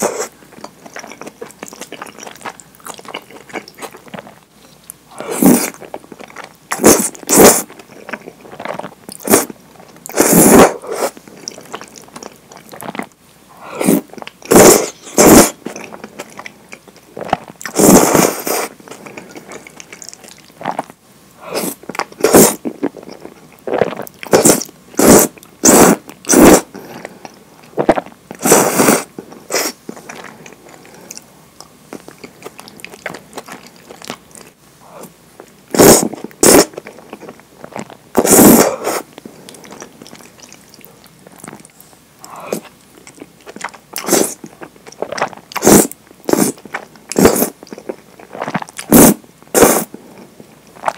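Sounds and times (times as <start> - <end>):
wet chewing: 0.0 - 13.2, 13.8 - 20.9, 21.6 - 34.6, 35.4 - 49.9, 50.7 - 50.9
noodles slurped: 5.1 - 13.1, 13.8 - 16.5, 17.2 - 20.9, 21.5 - 26.8, 35.7 - 49.9.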